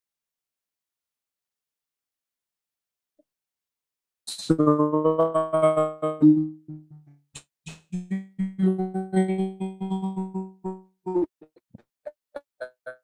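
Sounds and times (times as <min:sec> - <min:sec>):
garbled voice held pitches: 0:04.3 - 0:07.0, 0:07.7 - 0:11.3, 0:12.4 - 0:13.0.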